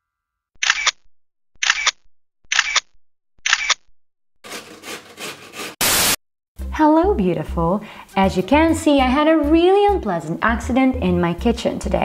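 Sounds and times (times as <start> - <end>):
grater rasping: 4.4 - 5.8
loud burst of noise: 5.8 - 6.2.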